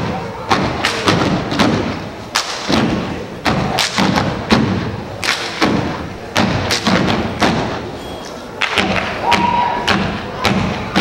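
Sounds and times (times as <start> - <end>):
hand claps: 3.8 - 4.2, 5.2 - 5.6.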